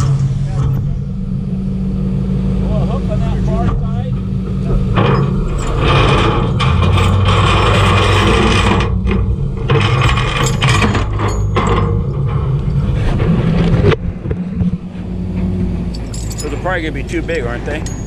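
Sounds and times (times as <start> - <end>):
truck engine running: 0.0 - 18.0
metal chain rattling and scraping: 4.8 - 18.0.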